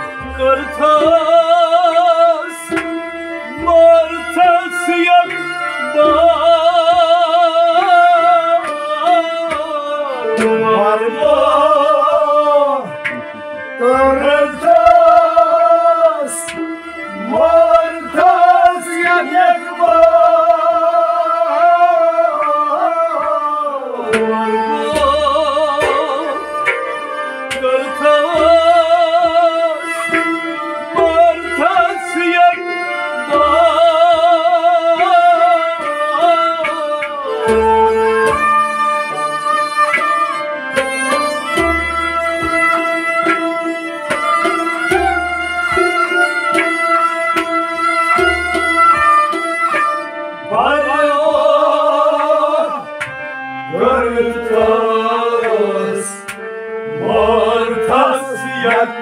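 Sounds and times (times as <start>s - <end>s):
man singing ornamented melody: 0.0s - 2.7s, 3.5s - 16.5s, 17.2s - 26.6s, 27.6s - 30.2s, 30.9s - 37.8s, 50.5s - 52.9s, 53.6s - 56.3s, 57.0s - 59.0s
bowed string instrument: 0.0s - 59.0s.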